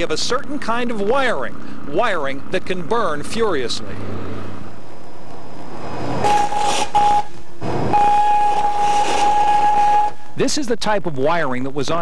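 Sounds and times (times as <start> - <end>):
electrical arcing buzz: 4.0 - 10.4.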